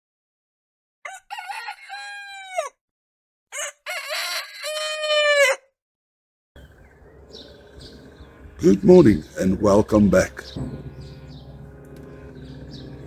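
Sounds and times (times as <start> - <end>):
rooster crowing: 1.0 - 2.8, 3.5 - 5.7.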